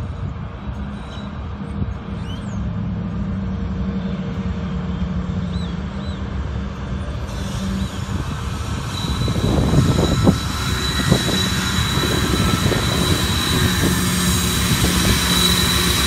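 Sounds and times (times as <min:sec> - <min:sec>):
diesel locomotive engine drone: 0:00.0 - 0:16.0
train hiss: 0:07.0 - 0:16.0.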